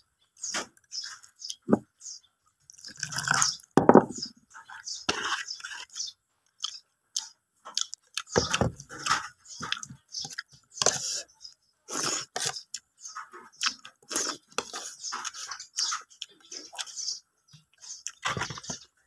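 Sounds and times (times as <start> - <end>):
man chewing and lip smacking: 5.6 - 11.3, 11.9 - 17.0, 17.6 - 18.6.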